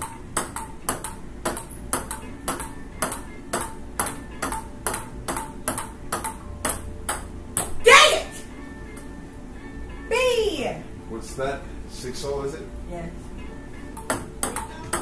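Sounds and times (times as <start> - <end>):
ping-pong ball clicking off paddles: 0.0 - 7.8, 13.9 - 15.0.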